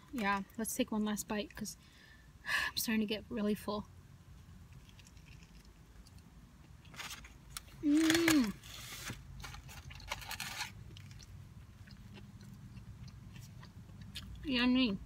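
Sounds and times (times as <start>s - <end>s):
person humming mmm: 7.8s - 8.7s.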